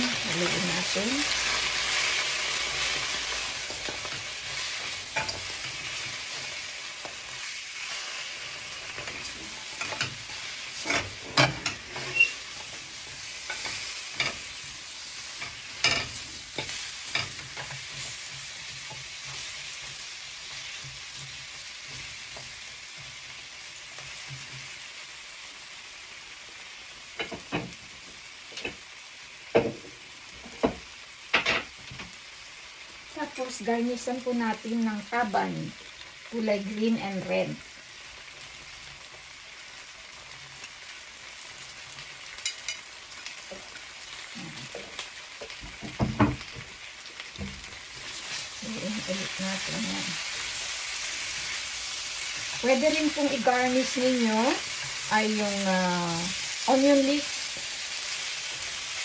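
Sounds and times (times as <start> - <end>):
chicken wings sizzling in a pan: 0.0 - 59.0
spatula knocking and scraping pan: 8.4 - 14.5.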